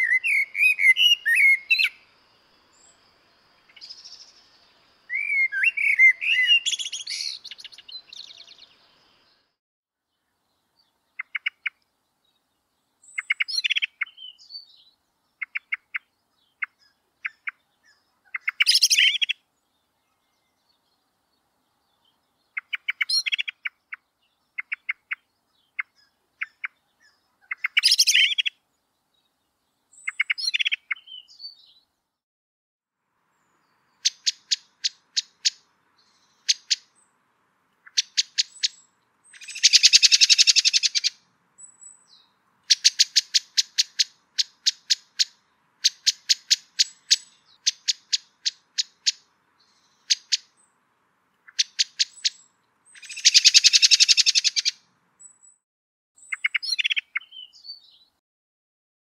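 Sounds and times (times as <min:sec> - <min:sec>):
blackbird calling: 0:00.0 - 0:02.0, 0:03.6 - 0:09.4, 0:11.0 - 0:11.8, 0:13.1 - 0:19.4, 0:22.5 - 0:28.6, 0:30.0 - 0:31.8, 0:33.9 - 0:37.1, 0:37.8 - 0:50.7, 0:51.4 - 0:54.8, 0:56.2 - 0:58.1.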